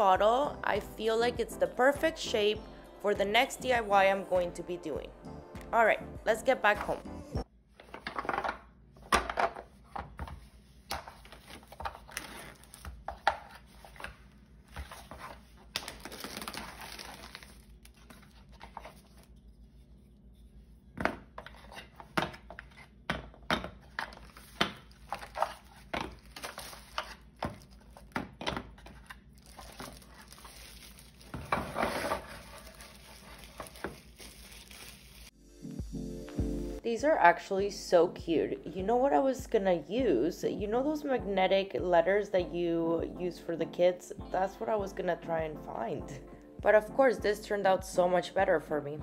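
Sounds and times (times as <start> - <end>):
plastic wrap crinkling: 11.2 - 19.4, 24.1 - 28.2, 28.8 - 35.4.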